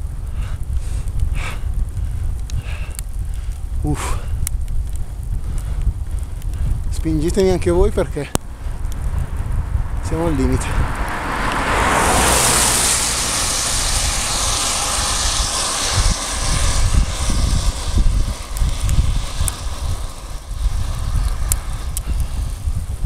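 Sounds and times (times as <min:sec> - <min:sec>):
hailstones ticking on camera: 0:00.0 - 0:09.6, 0:13.4 - 0:23.0
wind buffeting microphone: 0:00.0 - 0:23.0.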